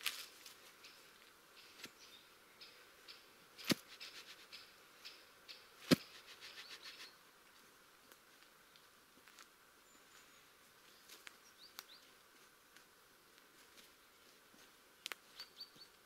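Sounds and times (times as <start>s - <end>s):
soil crunching: 3.6s - 4.5s.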